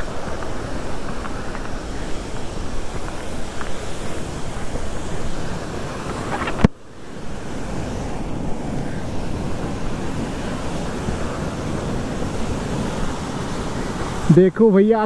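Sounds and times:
waterfall roaring: 0:00.0 - 0:15.0
wind buffeting microphone: 0:00.0 - 0:15.0.

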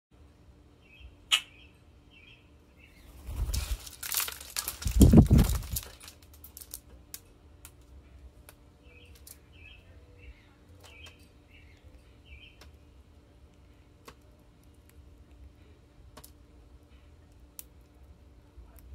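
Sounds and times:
small birds chirping: 0:00.6 - 0:05.9, 0:08.0 - 0:18.9
bird wings flapping: 0:03.1 - 0:06.0.

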